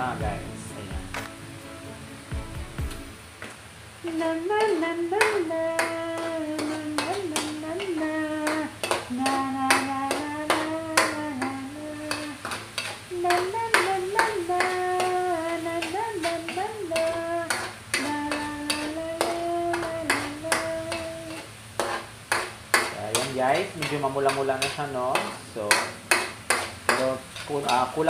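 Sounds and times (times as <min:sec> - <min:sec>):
person singing wordless tune: 0:00.0 - 0:01.4, 0:04.0 - 0:12.4, 0:13.1 - 0:21.5
spatula scraping steel pan: 0:04.6 - 0:11.1, 0:12.1 - 0:13.9, 0:15.8 - 0:25.3, 0:26.1 - 0:27.9.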